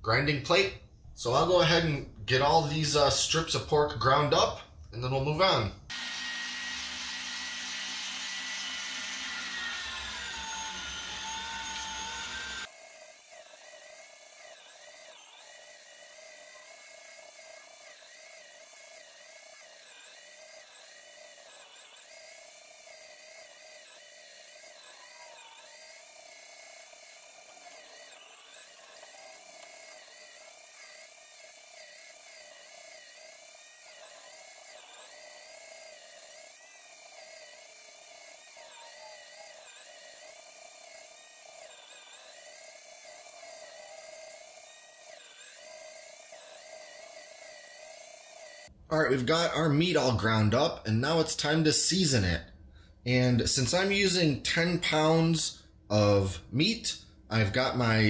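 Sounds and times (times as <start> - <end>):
electric motor whine: 5.9 - 48.8.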